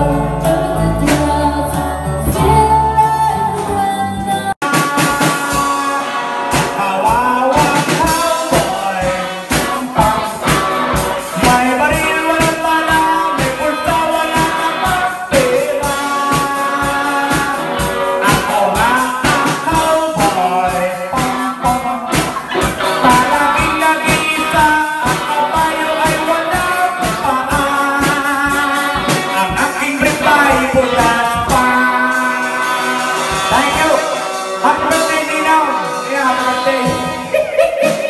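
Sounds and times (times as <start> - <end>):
drum kit beat: 0.0 - 38.0
electric guitar: 0.0 - 38.0
man singing into a microphone: 0.0 - 38.0.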